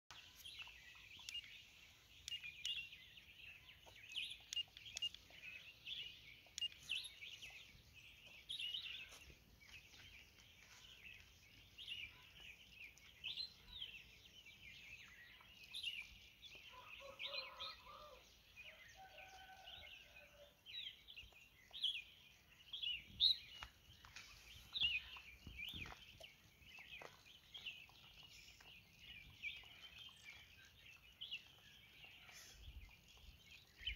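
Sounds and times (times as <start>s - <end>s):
small birds chirping and twittering: 0.1s - 33.9s
faint clicks: 3.8s - 5.6s.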